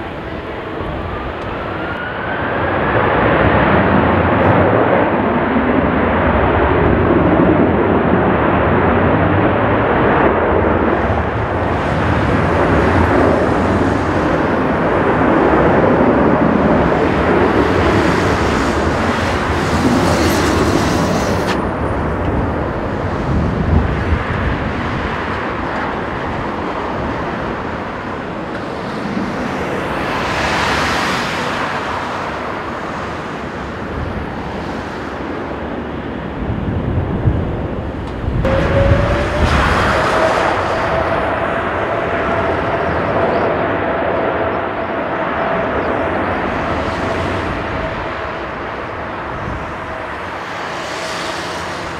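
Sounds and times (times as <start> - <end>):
jet engines running at low power: 0.0 - 51.9
wind rumbling on microphone: 0.0 - 51.9.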